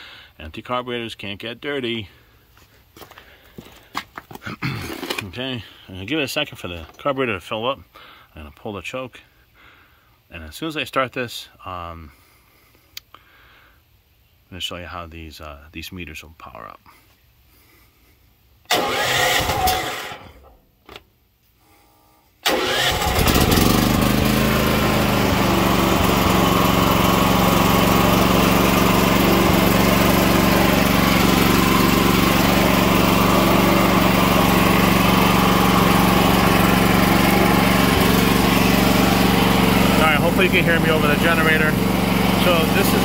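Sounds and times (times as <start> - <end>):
generator engine starting: 4.8 - 5.4, 18.6 - 21.0, 22.4 - 43.0.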